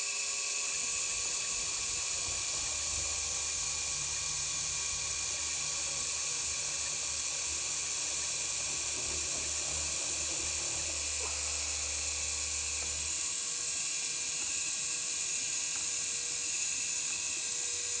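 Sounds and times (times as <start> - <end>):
router spindle whining: 0.0 - 18.0.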